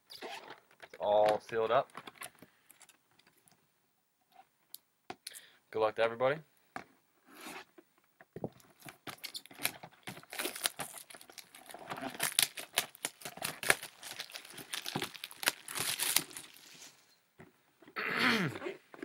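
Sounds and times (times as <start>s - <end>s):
plastic wrap crackling and ripping: 8.8s - 17.1s.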